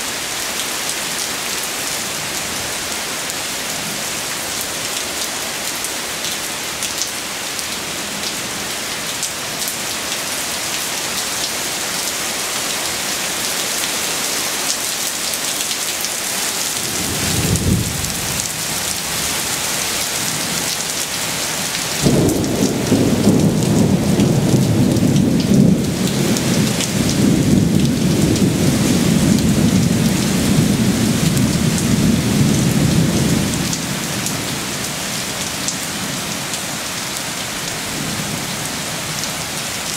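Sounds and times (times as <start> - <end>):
heavy rain pouring: 0.0 - 39.9
thunder rumbling: 16.8 - 20.7, 22.0 - 33.7.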